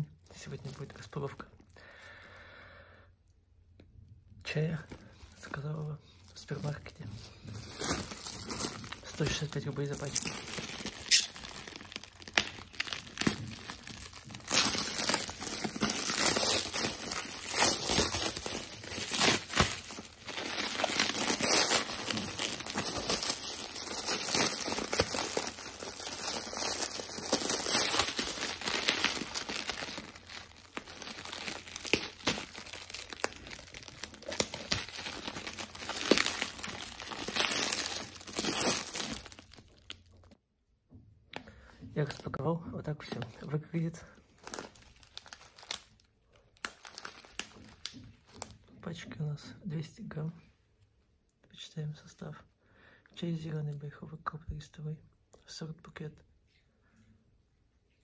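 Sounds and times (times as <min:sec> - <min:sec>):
plastic wrap crinkling: 0:00.0 - 0:01.5, 0:04.6 - 0:40.4, 0:42.0 - 0:48.7.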